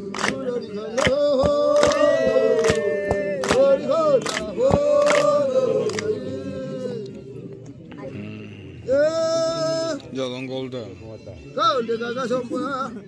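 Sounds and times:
hand claps: 0:00.0 - 0:06.2
women singing together: 0:00.0 - 0:07.0.

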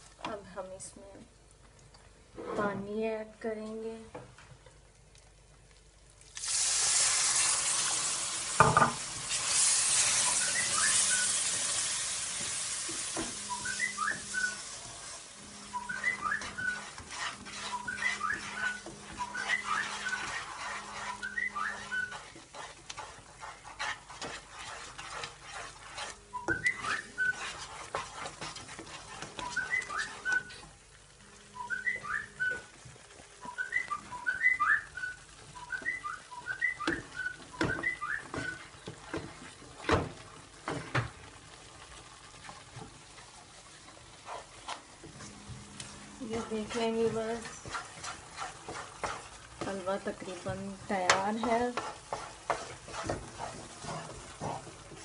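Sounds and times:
wooden spatula stirring and scraping: 0:02.3 - 0:05.8, 0:08.5 - 0:55.0
hot oil hissing with water: 0:06.4 - 0:31.0, 0:37.1 - 0:55.0.

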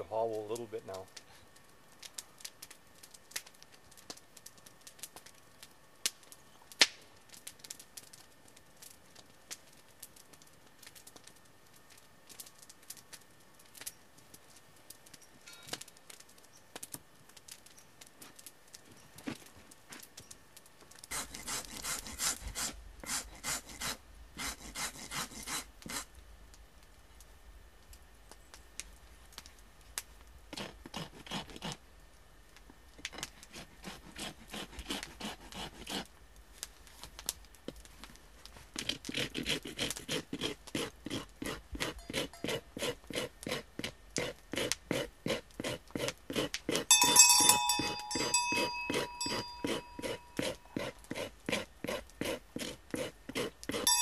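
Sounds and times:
hand rasp scraping: 0:21.1 - 0:26.1, 0:30.5 - 0:31.8, 0:33.2 - 0:36.1, 0:38.8 - 0:54.0
short bright metallic ring: 0:46.9 - 0:50.6.

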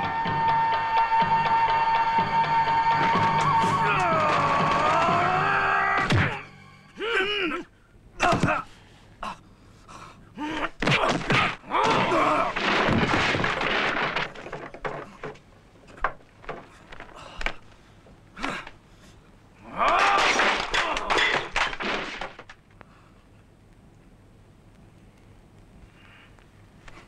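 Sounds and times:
fighters grunting and yelling: 0:03.6 - 0:08.7, 0:10.4 - 0:12.8, 0:19.6 - 0:21.5.

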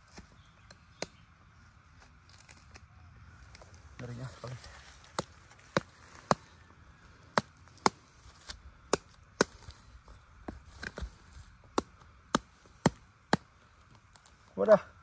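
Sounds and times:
knife chopping durian husk: 0:00.1 - 0:01.3, 0:05.0 - 0:06.7, 0:07.3 - 0:13.6.

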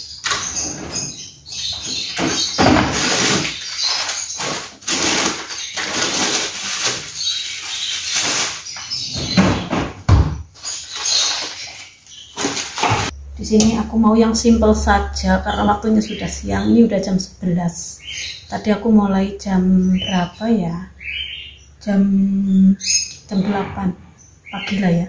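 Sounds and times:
freezer drawer scraping: 0:00.2 - 0:13.1.

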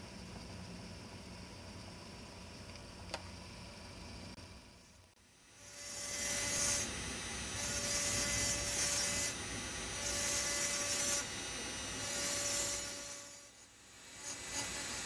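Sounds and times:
faint steady whine: 0:00.0 - 0:15.0
engraving drill grinding glass: 0:05.5 - 0:15.0.

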